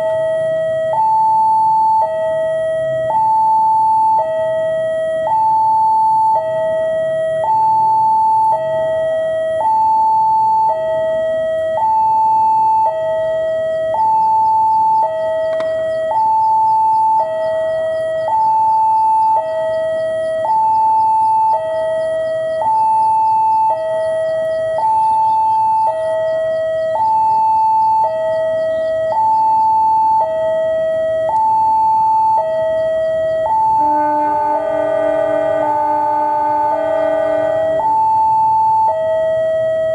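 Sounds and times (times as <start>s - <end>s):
two-tone level crossing alarm: 0.0s - 39.9s
locomotive horn: 33.7s - 38.0s.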